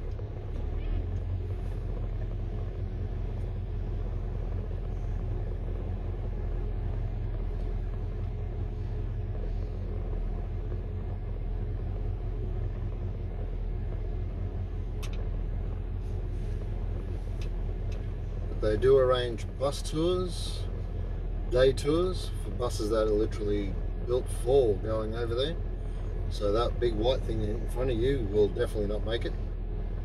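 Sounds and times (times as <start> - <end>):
car engine and road noise: 0.0 - 30.0.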